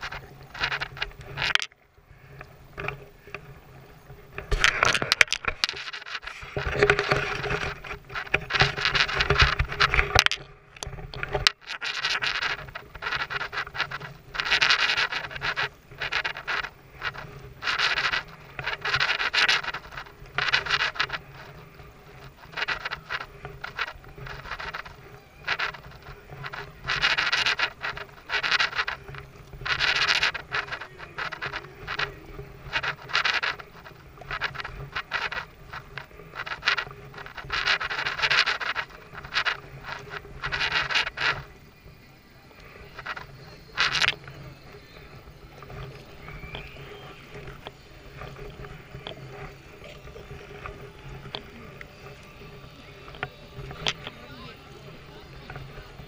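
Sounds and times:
faint low hum: 0:00.0 - 0:56.0
kayak paddle strokes: 0:00.0 - 0:56.0.

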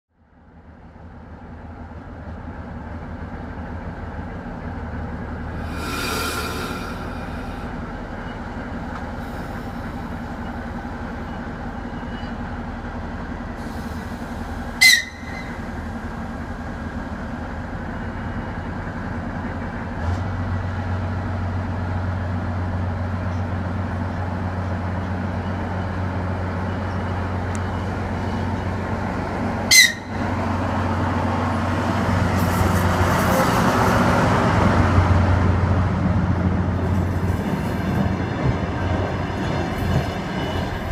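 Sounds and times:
diesel train engine droning: 0:00.2 - 0:40.9
wheel and rail noise: 0:00.4 - 0:40.9
train whistle toots: 0:14.8 - 0:15.6, 0:29.7 - 0:30.2.

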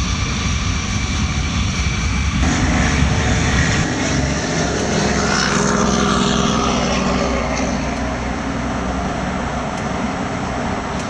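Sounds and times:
diesel locomotive engines rumbling: 0:00.0 - 0:11.0.

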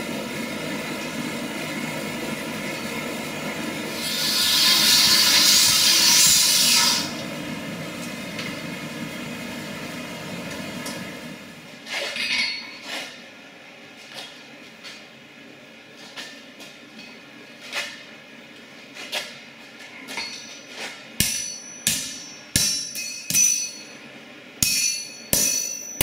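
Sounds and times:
angle grinder cutting steel: 0:03.9 - 0:07.2
hammer clanking on anvil: 0:20.1 - 0:24.0, 0:24.6 - 0:26.0.

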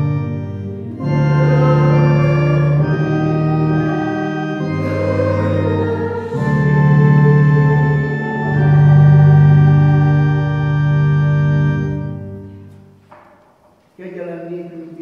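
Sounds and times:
church organ chords: 0:00.0 - 0:13.1.

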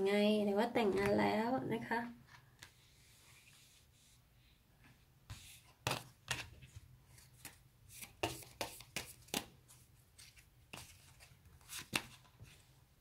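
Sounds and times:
cards flicking and rustling: 0:05.8 - 0:09.6, 0:10.2 - 0:12.4.

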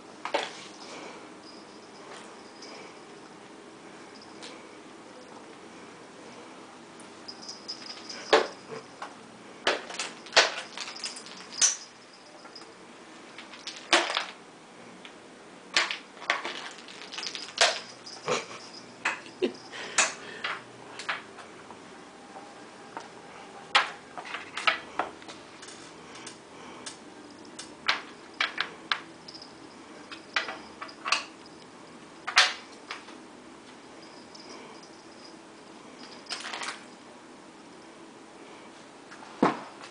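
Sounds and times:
ice cubes clattering on floor: 0:09.7 - 0:12.0, 0:13.4 - 0:14.4, 0:15.8 - 0:19.2, 0:36.0 - 0:36.8.

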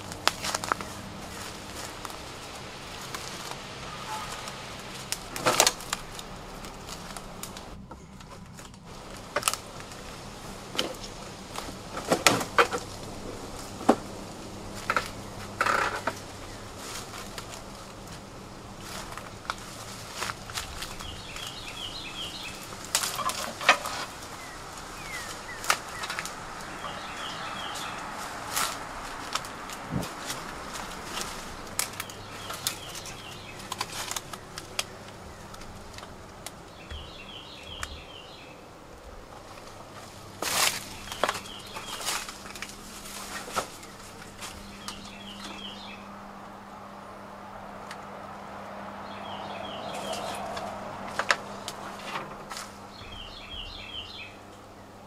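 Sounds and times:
twigs snapping underfoot: 0:00.0 - 0:38.5, 0:39.4 - 0:46.0, 0:47.7 - 0:54.3
footsteps through dry undergrowth: 0:00.0 - 0:54.5
songbird chirping: 0:00.0 - 0:55.0
bird chirps: 0:20.8 - 0:28.5, 0:36.7 - 0:38.6, 0:40.8 - 0:42.4, 0:43.8 - 0:46.1, 0:49.0 - 0:51.6, 0:52.8 - 0:54.5.

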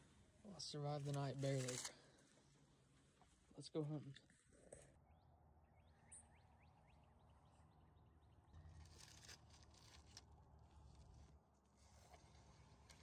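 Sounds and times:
faint clicks and rustles: 0:08.5 - 0:13.0.

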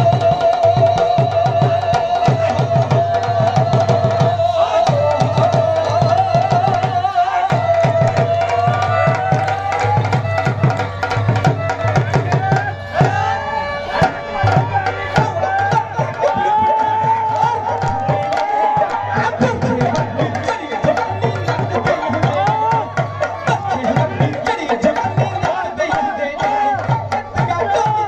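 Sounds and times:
dhol drum beating: 0:00.0 - 0:28.0.

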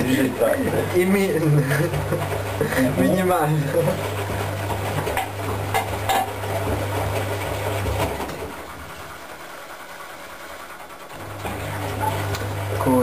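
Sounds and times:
washing machine motor humming: 0:00.0 - 0:13.0
drum knocking: 0:00.6 - 0:08.5.

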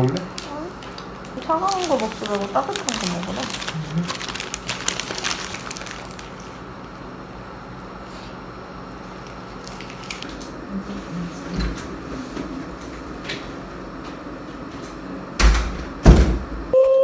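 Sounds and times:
room hum: 0:00.0 - 0:17.0
loud thump: 0:15.5 - 0:16.5.

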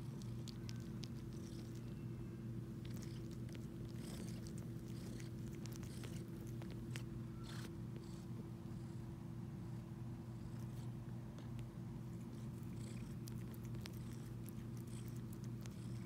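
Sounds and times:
cat purring: 0:00.0 - 0:16.0
cat sucking clicks: 0:02.8 - 0:08.1, 0:11.4 - 0:16.0.

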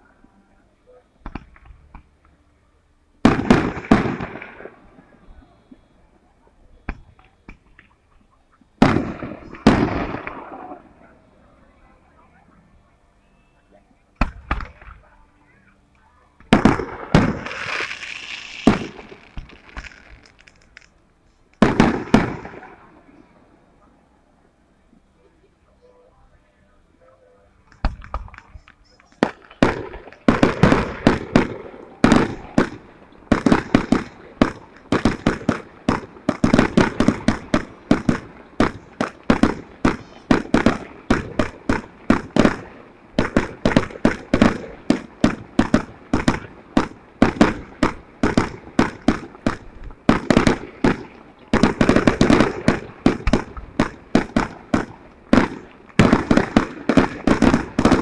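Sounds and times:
fireworks bursting: 0:03.2 - 0:06.0, 0:06.8 - 0:11.2, 0:16.4 - 0:23.9, 0:27.7 - 0:58.0.

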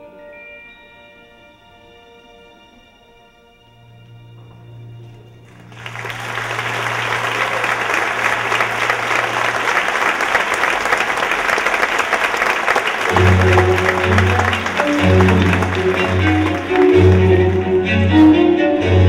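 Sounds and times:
held music notes: 0:05.0 - 0:19.0
audience applause: 0:05.5 - 0:18.1.

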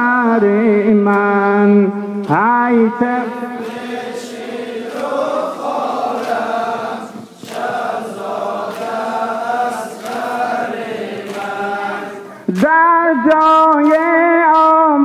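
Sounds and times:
men chanting in unison: 0:00.0 - 0:13.6.

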